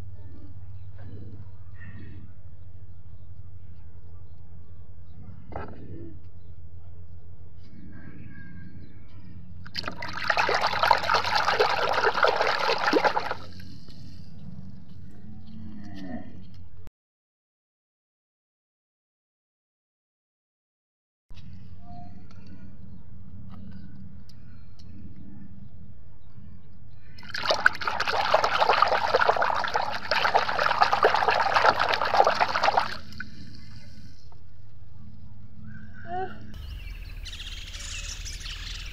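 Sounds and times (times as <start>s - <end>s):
hand splashing in soapy water: 9.8s - 13.6s, 27.2s - 33.2s.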